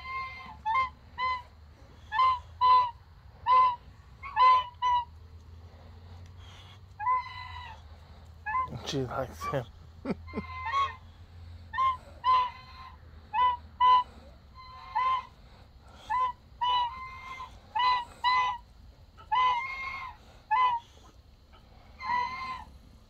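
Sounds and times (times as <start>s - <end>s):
goose honking: 0.0s - 1.5s, 2.1s - 5.1s, 11.8s - 15.4s, 16.0s - 18.6s, 19.2s - 21.0s.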